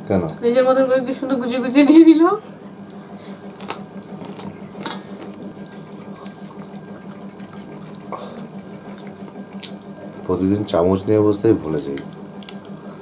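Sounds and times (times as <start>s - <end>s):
steady low hum: 0.0s - 13.0s
chewing: 2.9s - 10.3s, 11.9s - 12.9s.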